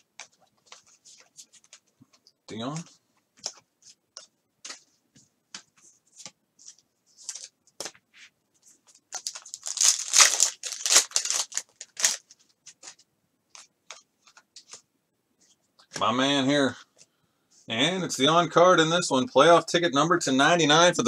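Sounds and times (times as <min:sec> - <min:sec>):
cards and wrapper rustling: 0:06.2 - 0:08.0, 0:08.8 - 0:14.8
foil pack tearing and crinkling: 0:09.2 - 0:12.2.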